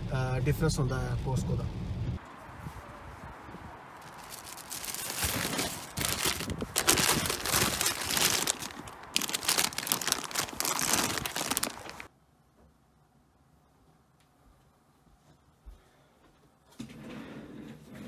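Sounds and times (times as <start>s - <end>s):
plastic bags crinkling and rustling: 4.0s - 12.1s.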